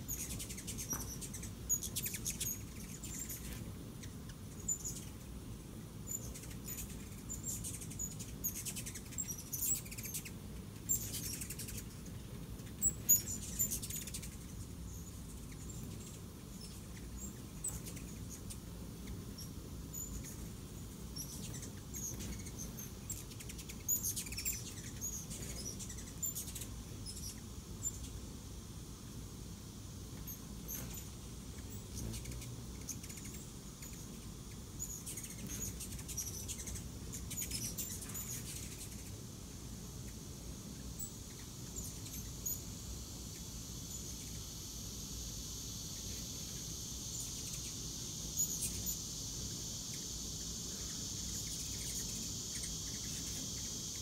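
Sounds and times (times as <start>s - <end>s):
hummingbird chip notes: 5.9s - 28.2s, 30.1s - 44.4s.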